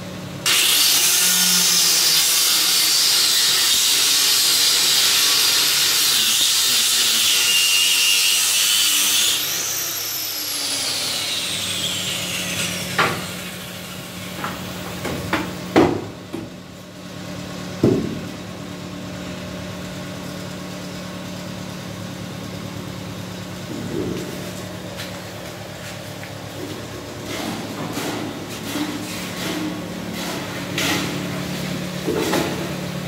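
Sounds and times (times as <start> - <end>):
electric planer shaving wood: 0.4 - 13.8.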